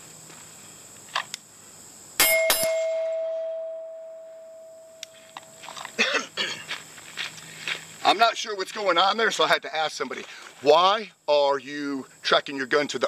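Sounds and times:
steel plate target ringing: 0:02.2 - 0:05.6
footsteps on gravel: 0:05.2 - 0:10.9.

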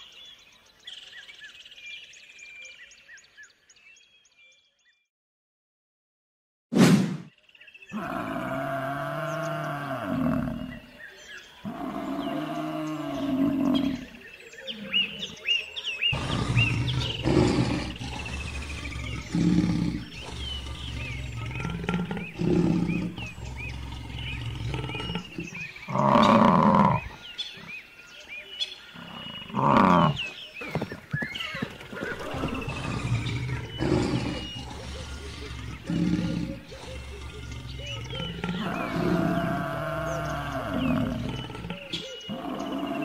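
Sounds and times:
birds chirping: 0:00.0 - 0:05.1, 0:07.2 - 0:43.0
lions roaring: 0:08.0 - 0:10.8, 0:11.6 - 0:14.2, 0:16.1 - 0:27.1, 0:32.0 - 0:43.0.

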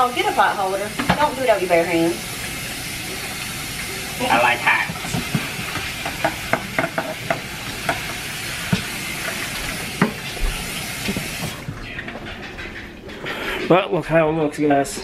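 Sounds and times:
tap running into sink: 0:00.9 - 0:01.5, 0:04.2 - 0:11.8
dishes clinking against sink: 0:01.0 - 0:01.4, 0:04.3 - 0:13.7.

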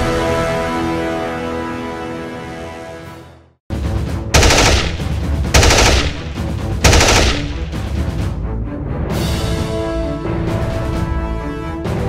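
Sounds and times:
machine-gun fire bursts: 0:04.4 - 0:08.0.

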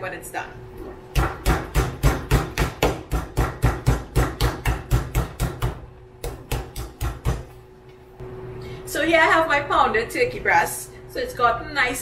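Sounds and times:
meat mallet pounding: 0:01.1 - 0:07.6.

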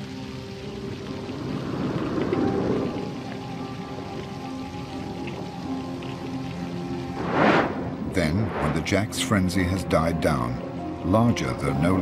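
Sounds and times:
soft background music: 0:00.0 - 0:12.0
rushing noise: 0:07.0 - 0:09.1.

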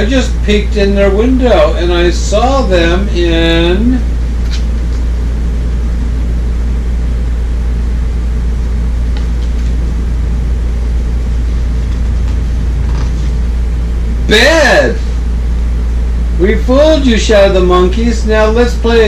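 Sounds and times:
low mechanical hum: 0:00.0 - 0:19.0
book page turning: 0:09.1 - 0:09.8, 0:11.9 - 0:13.4.

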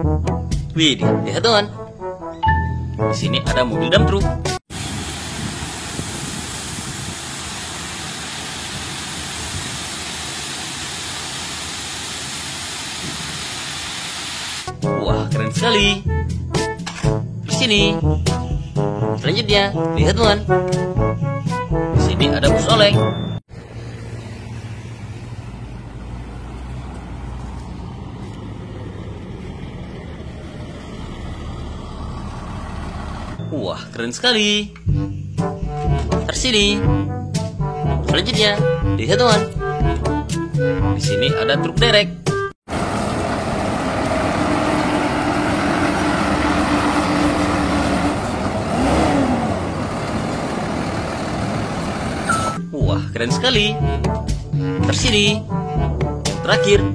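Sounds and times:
bus diesel engine rumbling: 0:04.7 - 0:14.1, 0:22.2 - 0:34.3, 0:42.7 - 0:52.6.

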